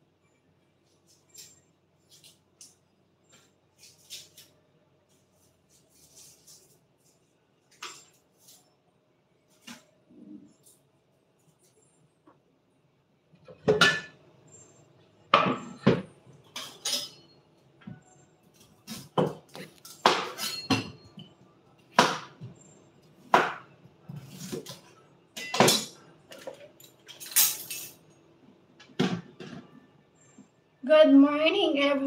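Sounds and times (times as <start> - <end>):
dishes clinking: 13.4 - 14.2, 15.3 - 18.1, 20.0 - 21.4, 24.2 - 28.1.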